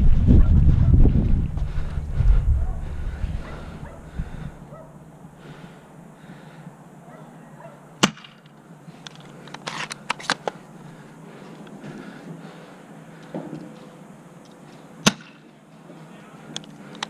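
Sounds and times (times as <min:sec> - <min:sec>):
airsoft gun shots: 0:08.0 - 0:08.4, 0:15.0 - 0:15.4.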